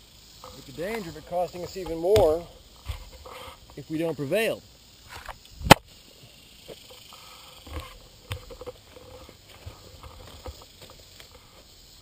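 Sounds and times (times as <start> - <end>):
faint rustling: 0.4 - 4.0, 6.7 - 12.0.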